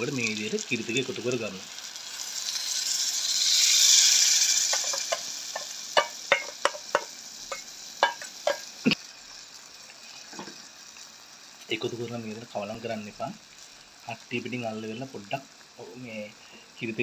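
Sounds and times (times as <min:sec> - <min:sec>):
liquid hissing in hot oil: 0:00.0 - 0:17.0
spoon tapping metal bowl: 0:04.7 - 0:08.6.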